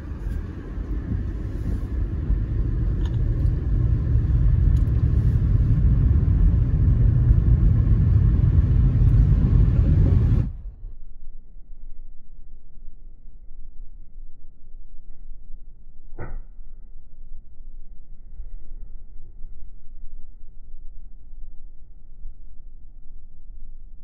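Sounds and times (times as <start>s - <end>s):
car driving on wet road: 0.0s - 10.6s
faint low hum: 0.0s - 24.0s.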